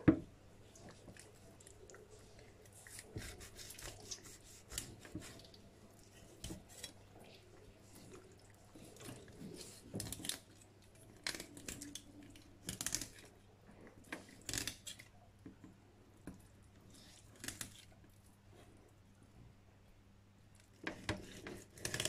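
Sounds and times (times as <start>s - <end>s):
knife slicing raw fish: 2.9s - 5.4s.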